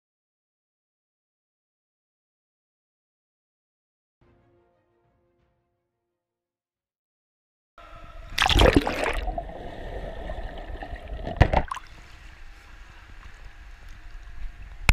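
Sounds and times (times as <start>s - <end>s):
pool water splashing and gurgling: 8.2s - 14.4s
loud water splashes: 8.3s - 12.1s.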